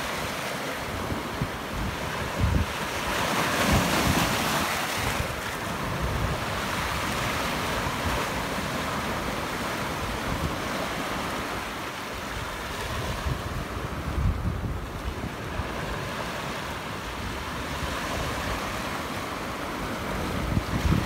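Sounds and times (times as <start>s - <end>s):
sea waves washing over rock: 0.0s - 21.0s.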